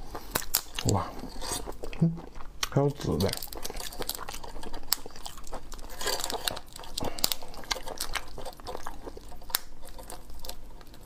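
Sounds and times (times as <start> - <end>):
prawn shell crackling: 2.7 - 11.0.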